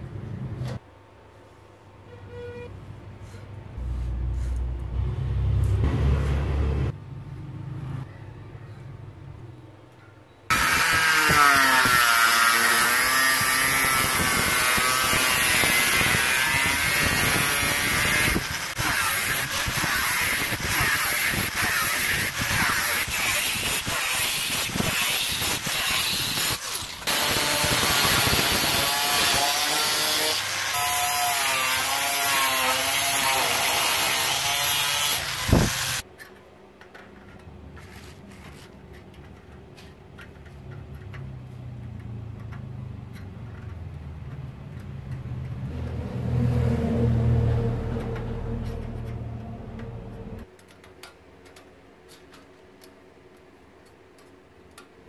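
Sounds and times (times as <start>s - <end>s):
angle grinder cutting metal: 10.5s - 36.0s.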